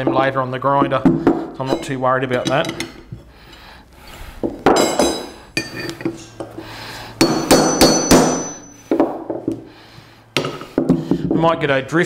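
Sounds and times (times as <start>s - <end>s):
metal tools clanking together: 4.8s - 6.5s.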